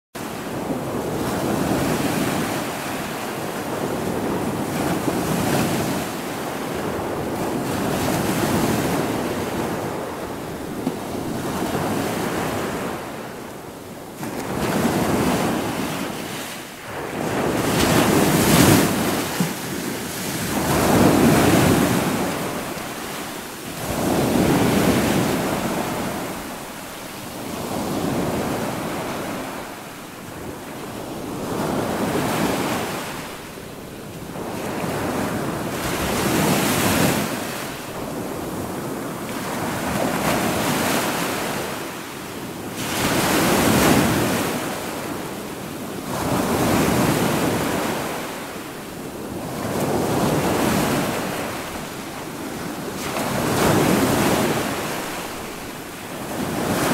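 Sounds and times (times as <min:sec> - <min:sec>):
waves washing against boulders: 0:14.2 - 0:33.5.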